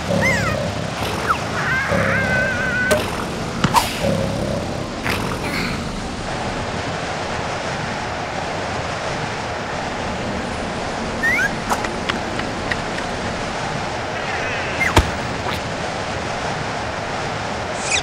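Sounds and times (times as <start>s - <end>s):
rushing wind-like ambience: 0.0s - 18.0s
rising squeaks: 11.1s - 15.7s
sharp cartoon knocks: 14.8s - 15.6s.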